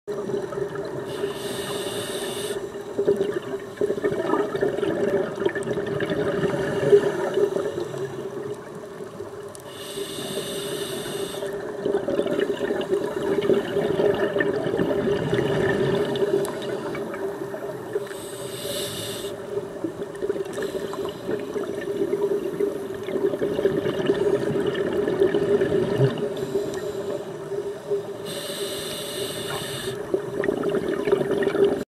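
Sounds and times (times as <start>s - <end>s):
hissing regulator inhale: 1.1s - 2.8s, 9.7s - 11.6s, 18.0s - 19.6s, 20.5s - 21.6s, 26.3s - 27.4s, 28.2s - 30.1s
bubbling exhales: 29.4s - 31.8s.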